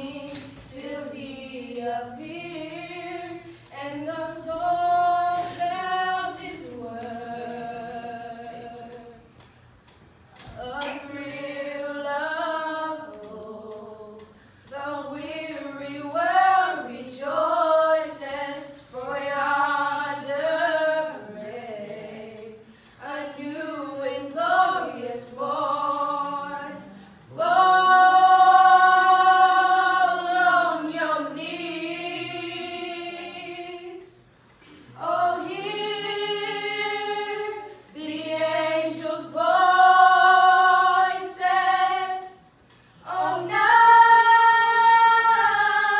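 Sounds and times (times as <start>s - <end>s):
girls singing a cappella in harmony: 0.0s - 45.9s.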